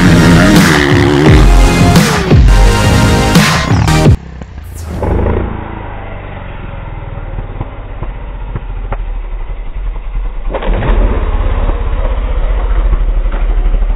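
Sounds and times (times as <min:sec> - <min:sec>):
dirt bike engine revving: 0:00.0 - 0:08.1.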